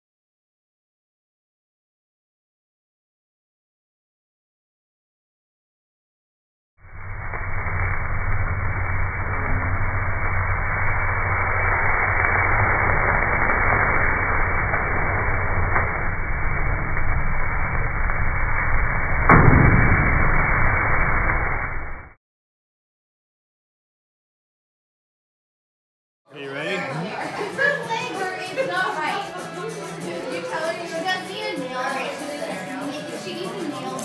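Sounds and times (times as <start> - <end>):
grill flames rushing: 6.8 - 22.1
sharp knock: 19.3 - 20.2.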